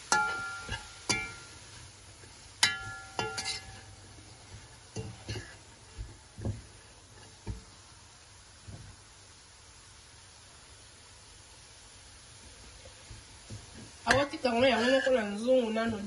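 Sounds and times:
metal spoon scraping a pot: 2.6 - 3.9.

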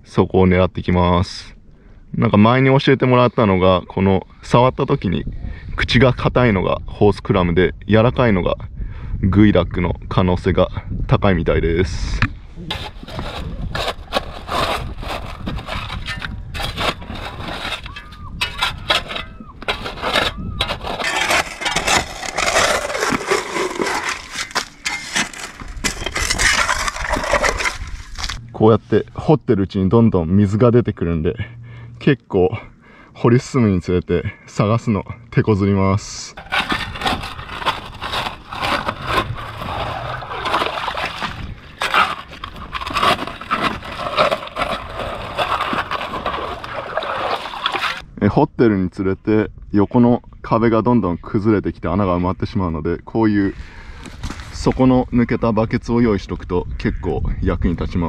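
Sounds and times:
digging in wet sand: 12.6 - 28.4, 36.4 - 48.0
water sloshing: 12.7 - 28.5, 36.4 - 48.0.

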